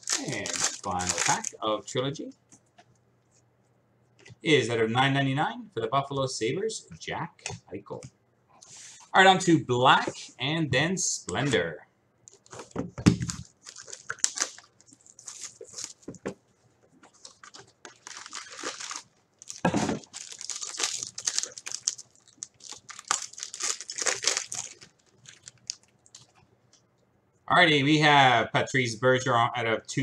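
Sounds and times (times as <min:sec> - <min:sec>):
plastic wrapping torn and crinkled: 0:00.0 - 0:01.6, 0:12.3 - 0:16.1, 0:17.1 - 0:26.4.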